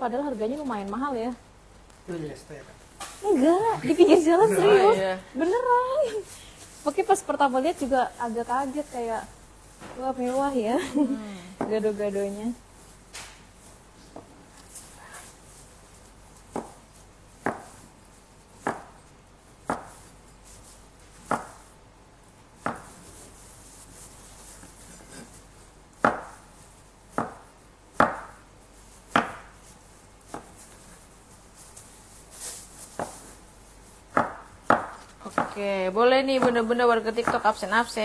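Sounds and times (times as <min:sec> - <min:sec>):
knife chopping on wooden board: 0:16.5 - 0:16.8, 0:17.4 - 0:17.8, 0:18.6 - 0:19.0, 0:19.6 - 0:20.0, 0:21.2 - 0:21.6, 0:22.6 - 0:23.0, 0:26.0 - 0:26.4, 0:27.1 - 0:28.4, 0:29.1 - 0:29.6, 0:30.3 - 0:30.6, 0:34.1 - 0:35.6, 0:36.3 - 0:37.5.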